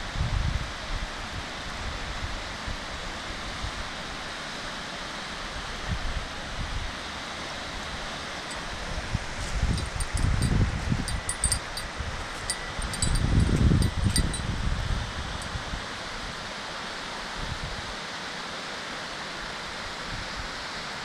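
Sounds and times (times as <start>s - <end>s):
wind buffeting on microphone: 8.8s - 15.9s.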